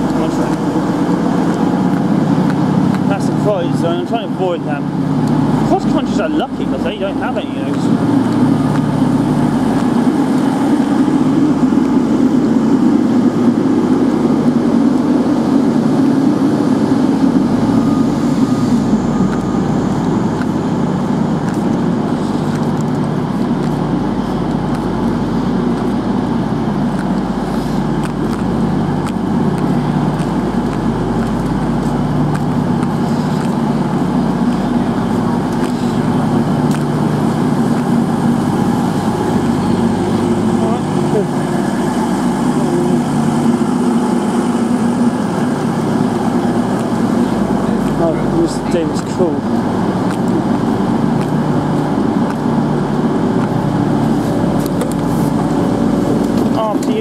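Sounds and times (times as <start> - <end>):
diesel train engines idling: 0.0 - 57.0.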